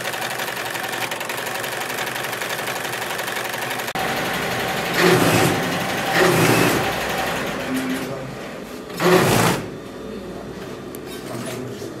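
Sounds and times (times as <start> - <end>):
embroidery machine stitching: 0.0 - 8.2, 8.9 - 9.7
sewing machine running: 0.0 - 8.2, 8.9 - 9.7.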